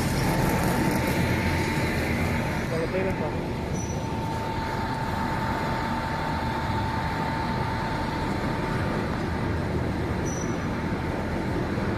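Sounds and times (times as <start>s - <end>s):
factory machinery rumbling: 0.0s - 11.9s
machine whine: 0.0s - 11.9s
short high squeak: 10.2s - 10.6s.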